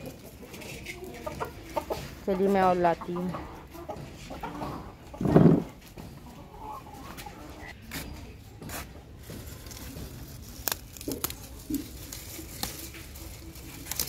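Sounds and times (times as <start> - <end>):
hens clucking: 0.0 - 10.3
leaves snapping and rustling: 9.2 - 14.0.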